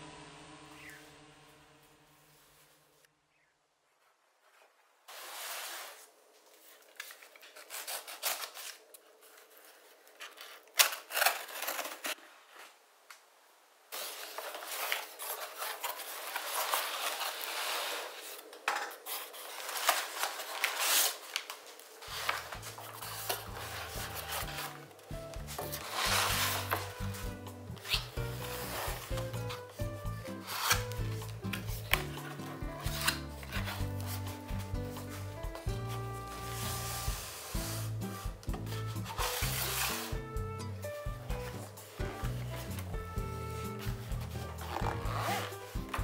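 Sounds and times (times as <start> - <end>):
cardboard rustling and scraping: 4.4 - 12.8, 13.9 - 46.0
background music: 22.0 - 46.0
knife slitting tape: 27.8 - 29.6, 30.3 - 33.9.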